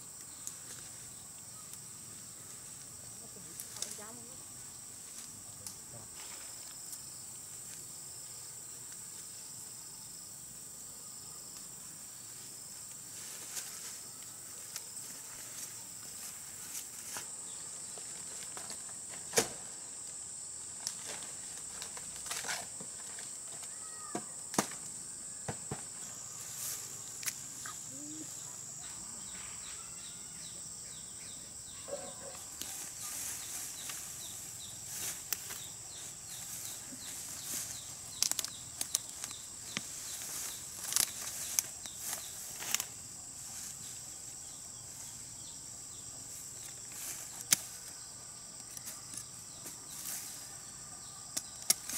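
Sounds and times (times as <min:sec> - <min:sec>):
insects droning: 0:00.0 - 0:51.9
rustling through tall grass: 0:26.4 - 0:28.4, 0:32.4 - 0:44.2, 0:46.2 - 0:47.8.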